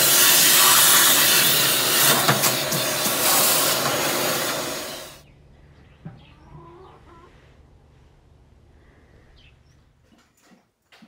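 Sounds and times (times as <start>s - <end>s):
vacuum sucking wood pellets: 0.0s - 5.2s.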